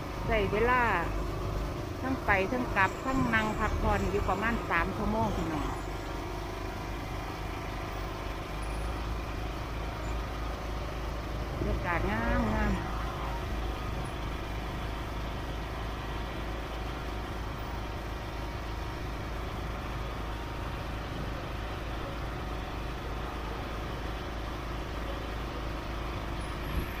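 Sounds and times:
boat engine running: 0:00.0 - 0:27.0.

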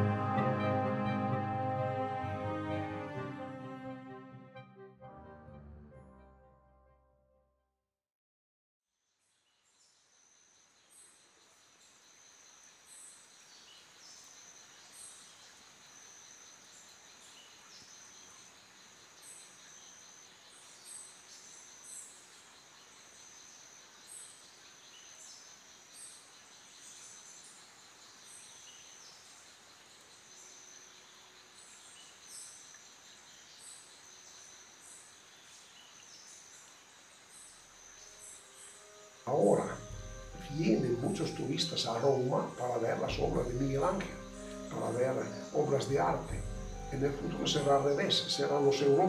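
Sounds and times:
high insect drone: 0:27.4 - 0:49.0
high downward-sliding chirps: 0:39.2 - 0:49.0.

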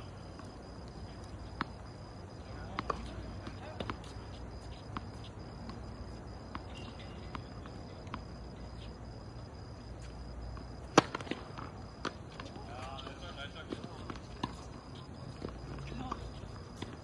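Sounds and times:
tennis ball bouncing on court: 0:02.6 - 0:09.0, 0:10.6 - 0:17.0
racket striking ball: 0:10.9 - 0:11.4.

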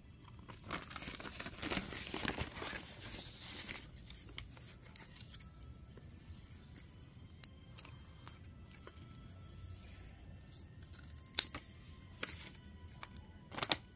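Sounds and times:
paper rustling and crinkling: 0:00.3 - 0:06.9, 0:10.9 - 0:13.9.

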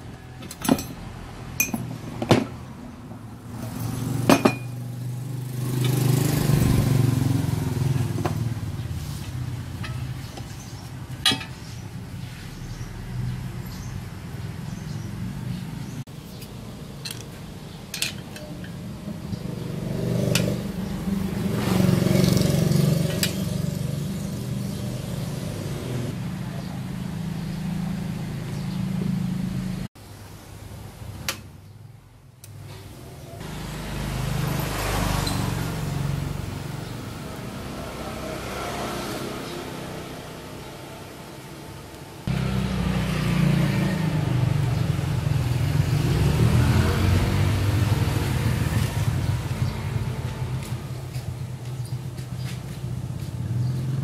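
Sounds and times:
metal pipe clinks: 0:01.6 - 0:01.9, 0:04.3 - 0:04.8, 0:11.2 - 0:11.6.

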